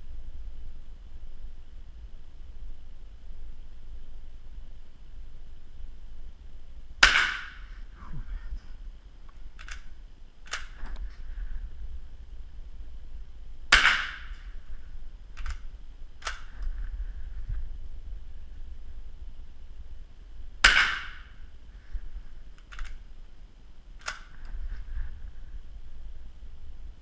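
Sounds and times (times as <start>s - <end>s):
rifle shots with echo: 7.0s - 7.7s, 13.7s - 14.5s, 20.6s - 21.4s
sharp rifle bolt clicks: 9.6s - 11.0s, 15.3s - 16.7s, 22.6s - 23.0s, 24.0s - 24.5s.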